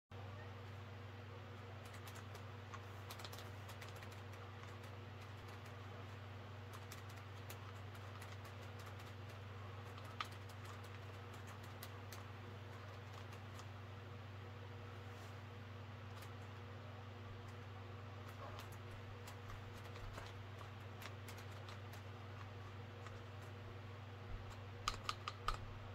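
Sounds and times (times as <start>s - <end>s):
steady low hum: 0.1s - 25.9s
mask mechanism clicking: 24.4s - 25.7s.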